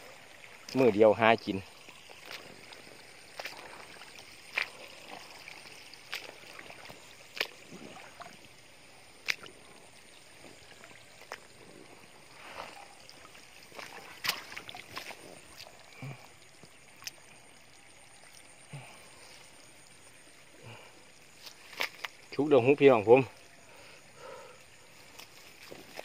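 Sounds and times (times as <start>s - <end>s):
small splash: 0.0s - 17.4s, 21.3s - 22.4s, 25.0s - 26.0s
faint steady hiss: 0.0s - 26.0s
footsteps through wet grass: 1.6s - 8.4s, 12.3s - 15.9s, 21.4s - 22.3s, 25.0s - 26.0s.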